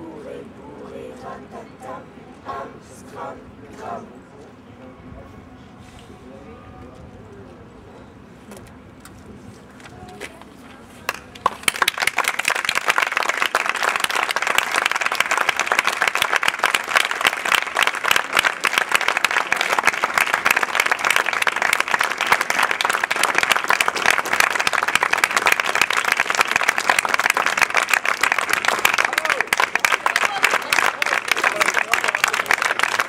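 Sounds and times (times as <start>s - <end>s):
audience applauding: 11.1s - 33.0s.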